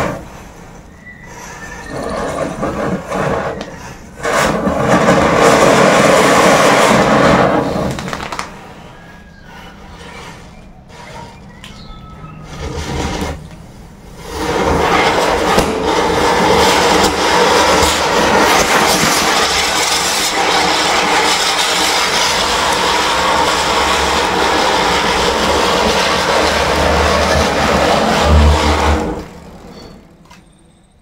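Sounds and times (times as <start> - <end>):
spinning firework hissing: 0.0 - 11.2, 12.5 - 30.1
firework crackling: 1.9 - 9.0, 14.0 - 29.8.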